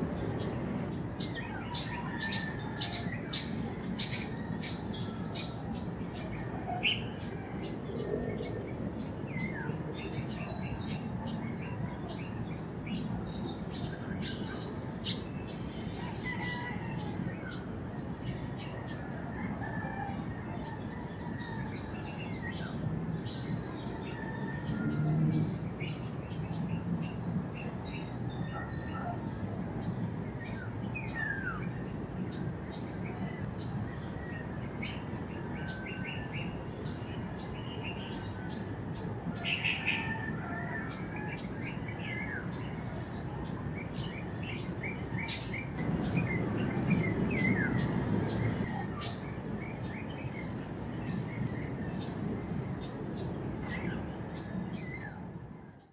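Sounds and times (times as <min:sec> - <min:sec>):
birds chirping: 0:20.6 - 0:55.2.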